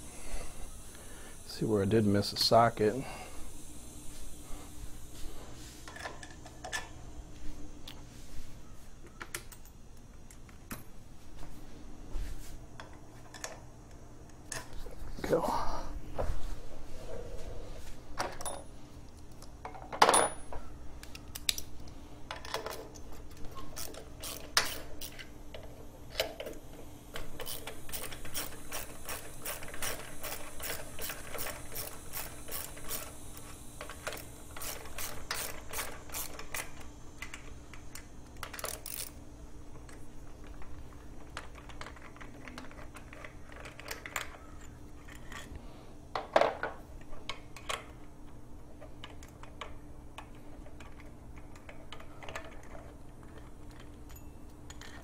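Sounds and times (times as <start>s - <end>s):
steady low hum: 0.0s - 55.0s
socket ratchet clicking: 22.4s - 25.3s, 27.2s - 39.2s
tools clinking: 27.2s - 39.2s, 50.8s - 55.0s.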